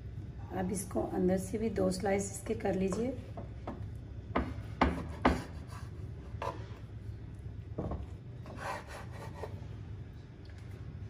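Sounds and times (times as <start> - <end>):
knife scraping cutting board: 4.6 - 6.8, 8.4 - 9.6
knife sawing through bread: 8.5 - 9.6.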